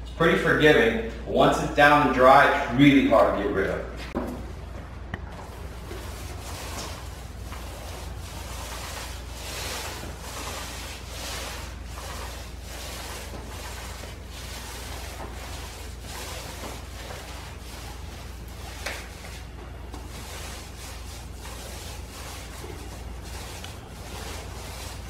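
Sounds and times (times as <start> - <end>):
paint roller swishing: 5.3 - 25.0.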